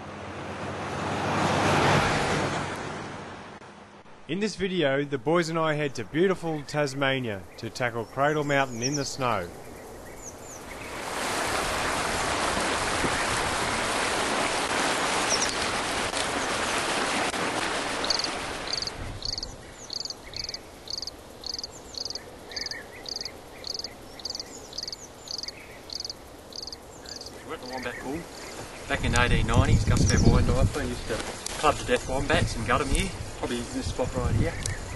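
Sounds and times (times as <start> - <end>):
high chirping call: 7.2 - 10.8, 18.0 - 28.6.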